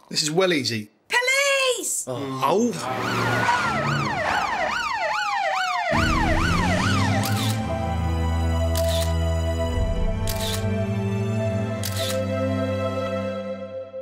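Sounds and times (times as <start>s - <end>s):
police siren wailing rapidly: 2.8s - 7.6s
music track: 5.9s - 14.0s.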